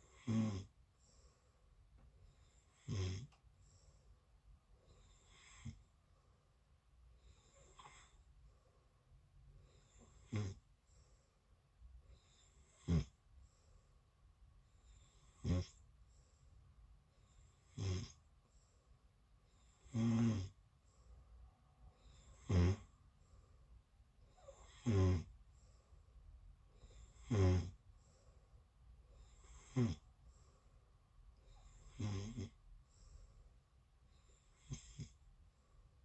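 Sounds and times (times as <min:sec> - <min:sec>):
person snoring: 0:00.0 - 0:00.7, 0:02.5 - 0:03.4, 0:09.8 - 0:10.6, 0:12.2 - 0:13.2, 0:14.9 - 0:15.8, 0:17.6 - 0:18.2, 0:19.6 - 0:20.6, 0:22.0 - 0:22.9, 0:24.3 - 0:25.3, 0:26.9 - 0:27.8, 0:29.2 - 0:30.1, 0:31.4 - 0:32.6, 0:34.4 - 0:35.2.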